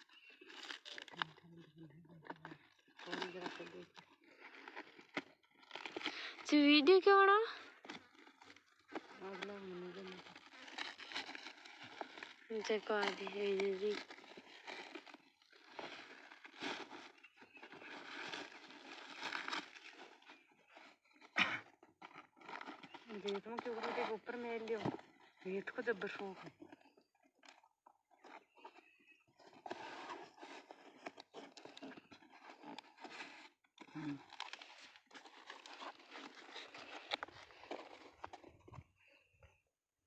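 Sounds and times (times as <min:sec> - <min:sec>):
plastic wrapping crinkling: 0:00.0 - 0:39.2
packing tape crackling: 0:00.1 - 0:01.6, 0:02.2 - 0:28.8, 0:29.4 - 0:38.5.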